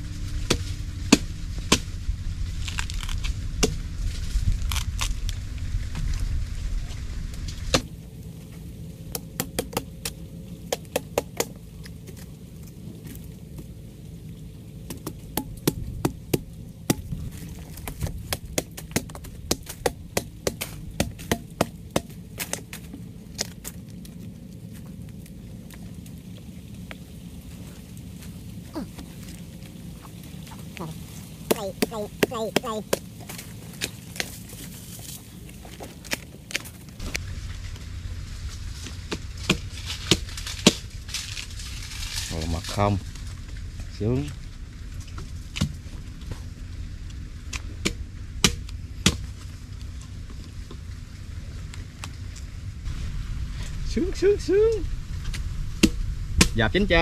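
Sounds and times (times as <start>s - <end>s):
loud low rumble: 0.0s - 35.8s, 37.0s - 57.0s
sharp cracks and knocks: 9.1s - 13.7s, 14.8s - 26.2s, 31.5s - 37.8s, 38.8s - 43.3s, 47.5s - 50.0s, 55.2s - 56.7s.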